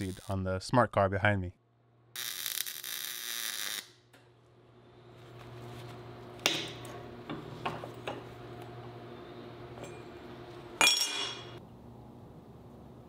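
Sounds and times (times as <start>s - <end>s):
ringing metal clank: 10.8s - 11.6s.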